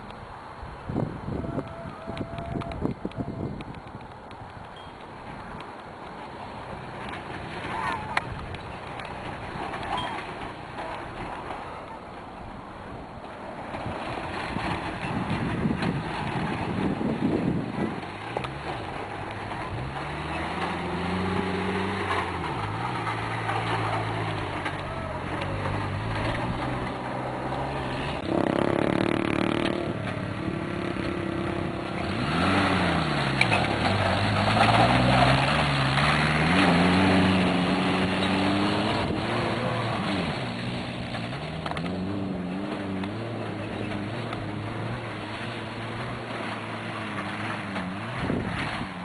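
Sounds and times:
vehicle engine revving: 13.6s - 49.0s.

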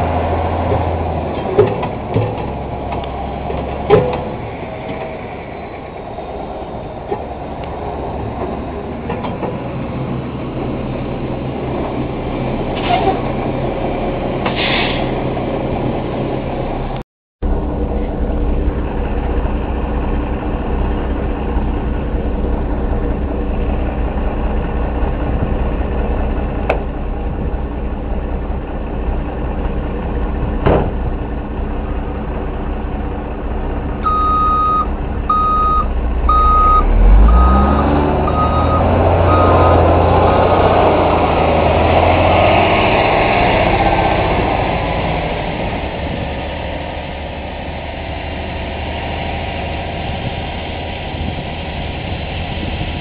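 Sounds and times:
truck engine revving: 0.0s - 9.0s, 9.8s - 53.0s
diesel engine running: 0.0s - 53.0s
truck reversing alarm beeps: 34.0s - 39.9s.

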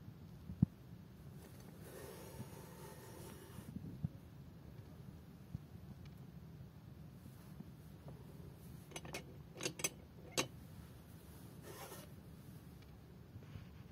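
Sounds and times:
soft rubbing scrape: 1.4s - 3.8s, 10.7s - 12.6s.

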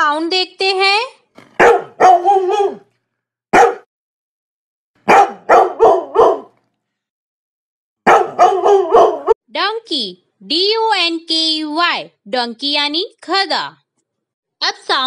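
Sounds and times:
dog barking: 1.6s - 2.9s, 3.5s - 3.9s, 5.0s - 6.6s, 8.0s - 9.4s.

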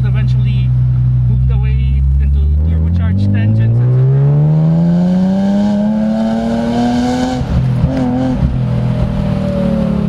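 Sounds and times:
car engine accelerating hard: 2.0s - 10.0s.

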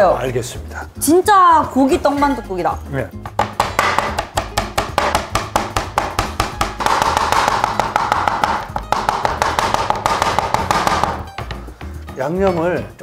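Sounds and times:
knife chopping on cutting board: 3.3s - 11.6s.

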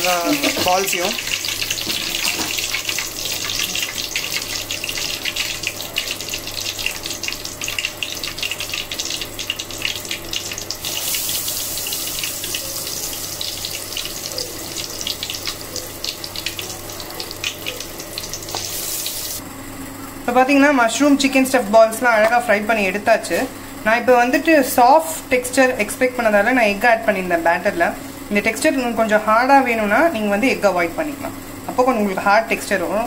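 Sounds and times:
deep-frying sizzle and crackling: 0.0s - 19.4s.

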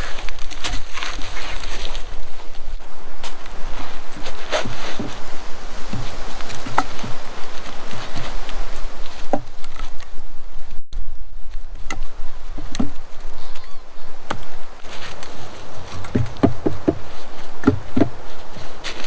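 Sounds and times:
steady low rumble: 2.0s - 19.0s
wooden poles knocking: 4.0s - 9.9s, 11.8s - 19.0s.

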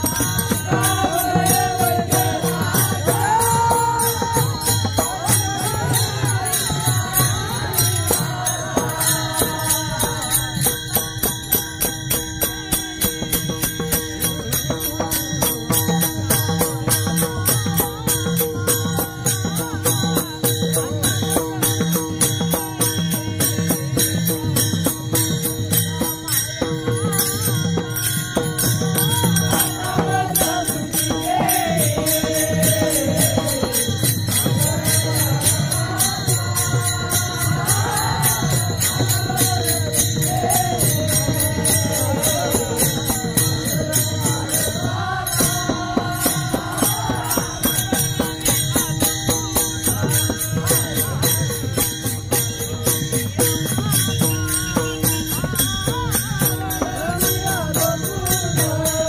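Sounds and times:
small hand cymbals: 0.0s - 59.0s.

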